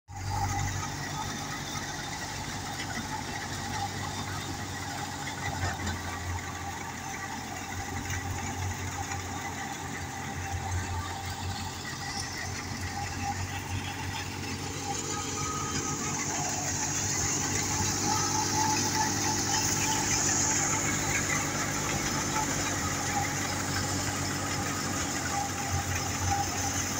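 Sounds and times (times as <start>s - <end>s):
tractor engine hum: 0.1s - 26.9s
thresher running: 4.6s - 26.9s.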